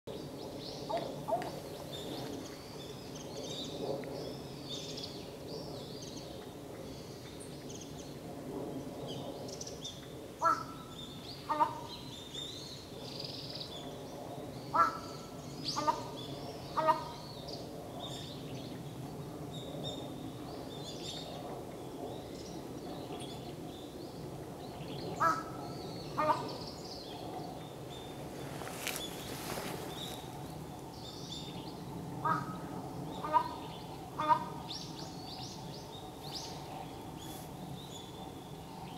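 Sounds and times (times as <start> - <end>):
crow calling: 10.4 - 10.8, 14.8 - 16.1, 25.2 - 26.6, 32.2 - 33.6, 34.2 - 34.6
small birds chirping faintly: 19.7 - 32.4.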